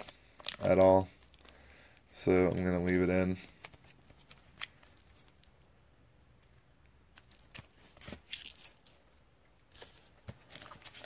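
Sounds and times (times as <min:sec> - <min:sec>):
crinkly plastic rustle: 0:00.0 - 0:01.6, 0:09.7 - 0:11.0.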